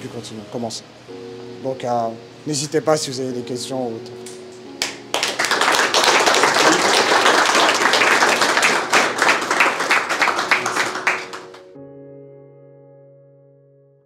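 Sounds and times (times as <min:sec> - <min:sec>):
people applauding: 0:04.8 - 0:11.7.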